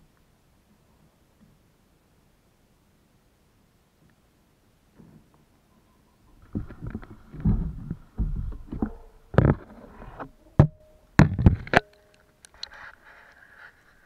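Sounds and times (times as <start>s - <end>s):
faint hiss: 0.0s - 11.2s, 11.8s - 14.0s.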